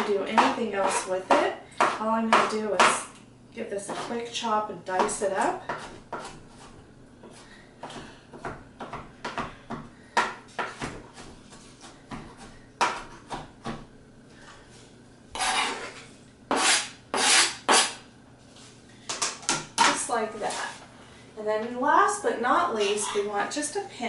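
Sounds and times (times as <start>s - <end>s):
knife chopping on cutting board: 5.0s - 13.9s, 16.5s - 18.0s
scraping food off board: 15.4s - 18.0s.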